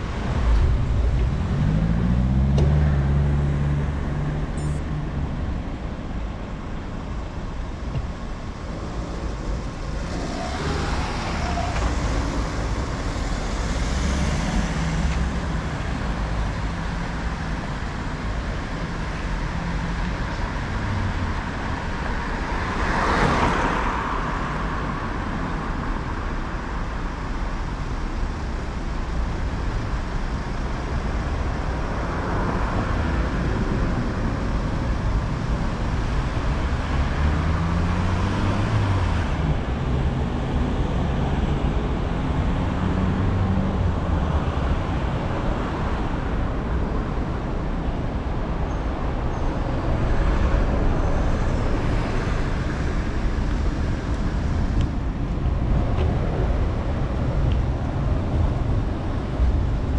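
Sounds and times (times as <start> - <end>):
engine rising in pitch: 0.0 - 5.2
steady road rumble: 0.0 - 59.9
vehicles passing: 0.0 - 59.9.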